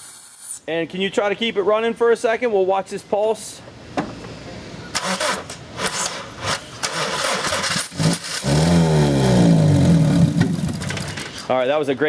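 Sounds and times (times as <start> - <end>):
car engine cranking and stalling: 4.9 - 11.5.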